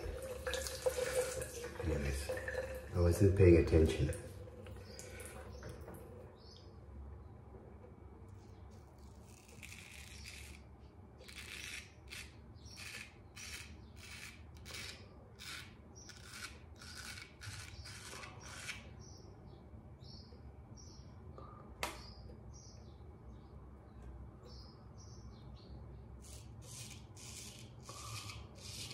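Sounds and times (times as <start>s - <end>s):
bird chirping: 4.6s - 7.4s, 11.2s - 14.3s, 15.5s - 27.0s
straight razor scraping stubble: 8.7s - 18.9s, 26.2s - 28.9s.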